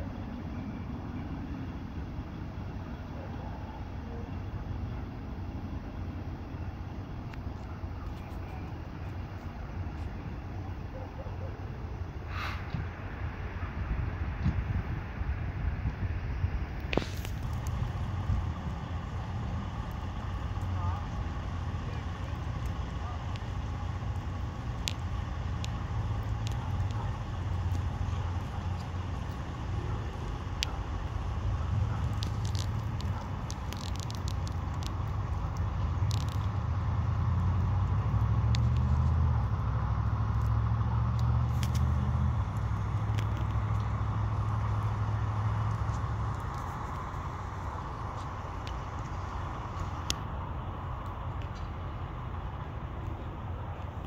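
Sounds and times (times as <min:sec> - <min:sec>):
engines idling: 0:00.0 - 0:54.0
faint sharp clicks: 0:40.3 - 0:50.3.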